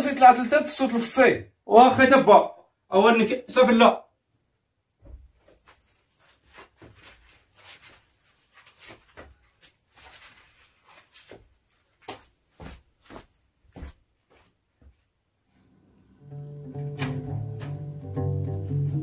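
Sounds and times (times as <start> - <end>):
footsteps: 5.0 - 15.1
sandals scuffing on floor: 5.0 - 15.2.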